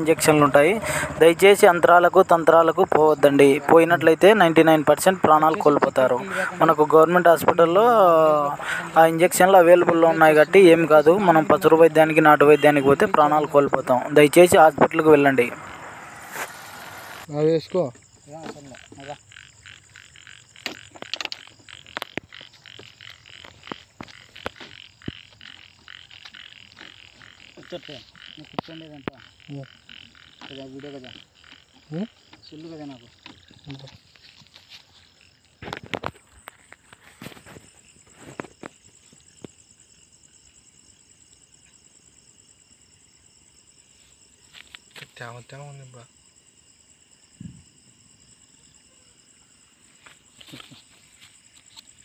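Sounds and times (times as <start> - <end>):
crickets chirping: 0.0 - 52.0
frogs calling: 0.0 - 52.0
sharp clicks and knocks: 20.5 - 27.7.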